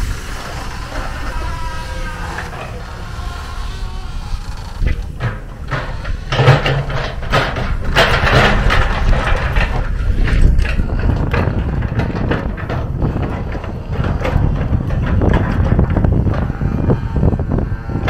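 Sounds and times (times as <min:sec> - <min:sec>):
bucket scraping dirt and stones: 0:04.4 - 0:16.6.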